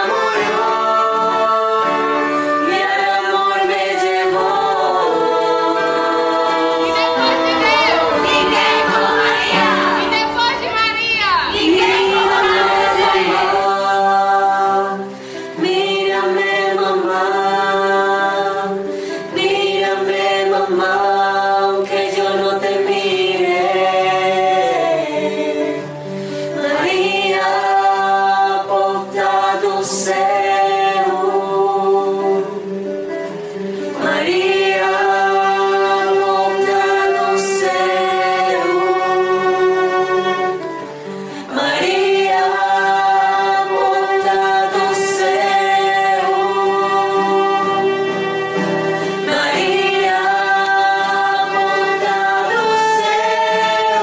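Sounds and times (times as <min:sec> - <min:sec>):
choir singing a hymn: 0:00.0 - 0:54.0
singers breathing: 0:15.1 - 0:15.6, 0:18.9 - 0:19.3, 0:26.0 - 0:26.6, 0:40.9 - 0:41.5, 0:48.8 - 0:49.2.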